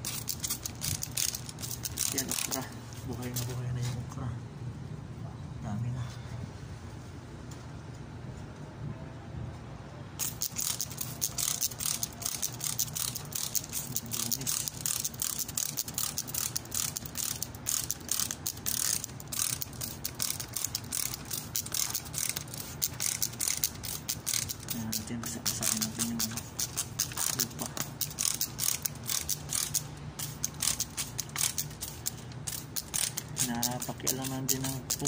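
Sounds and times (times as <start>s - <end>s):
spray bottle squirts: 0.0s - 2.6s, 10.2s - 35.0s
spray bottle trigger clicks: 10.2s - 35.0s.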